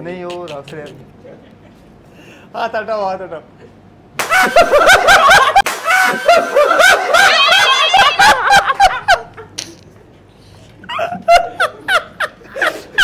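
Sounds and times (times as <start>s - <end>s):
group of men laughing loudly: 4.2s - 9.6s, 10.8s - 13.0s.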